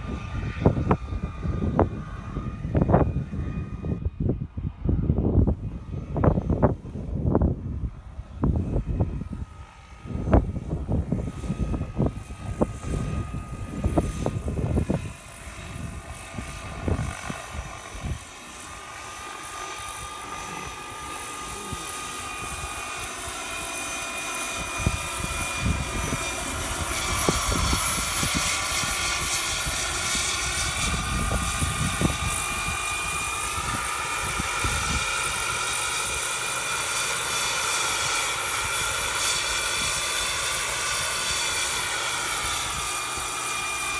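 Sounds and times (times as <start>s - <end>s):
gusty low rumbling: 0.0s - 18.4s, 24.5s - 35.4s
model helicopter turbine whine: 0.0s - 43.9s.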